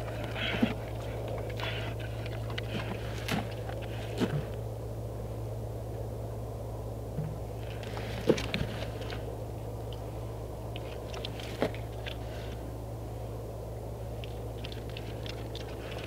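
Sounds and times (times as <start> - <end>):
pig crunching feed: 0.0 - 4.6, 7.6 - 9.3, 10.7 - 12.6, 14.2 - 16.0
steady low hum: 0.0 - 16.0.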